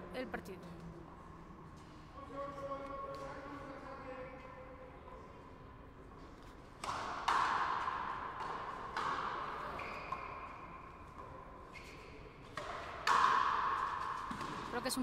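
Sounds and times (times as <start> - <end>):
ball hitting rackets and wall: 6.4 - 15.0.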